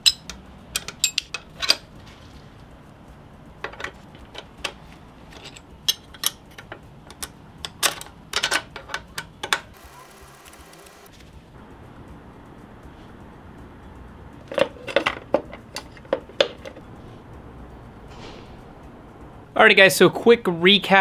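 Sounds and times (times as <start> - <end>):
hex key metallic clicks: 0.0 - 2.0.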